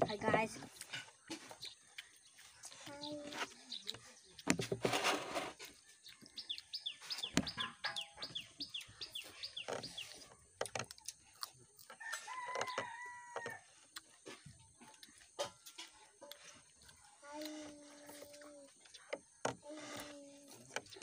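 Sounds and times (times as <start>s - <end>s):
rooster crowing: 12.0s - 13.7s.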